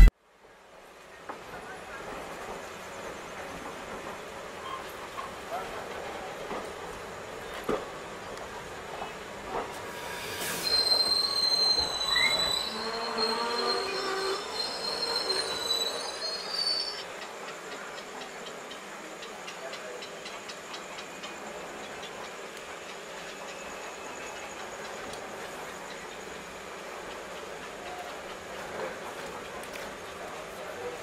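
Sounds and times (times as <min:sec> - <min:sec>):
train brakes squealing: 0:04.5 - 0:05.5, 0:09.5 - 0:17.2, 0:20.9 - 0:29.1.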